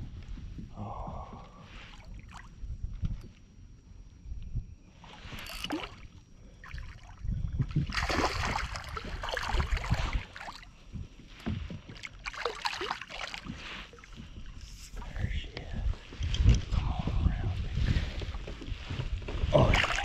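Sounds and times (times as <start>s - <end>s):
fishing reel handling noise: 5.3s - 5.9s
wind buffeting microphone: 7.1s - 10.3s, 14.3s - 20.0s
water splashing: 7.9s - 10.7s, 12.0s - 14.1s.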